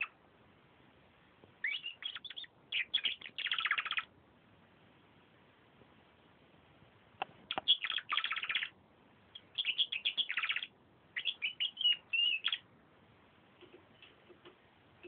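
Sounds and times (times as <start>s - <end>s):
canary trilling and chirping: 1.6s - 4.1s, 7.5s - 12.7s.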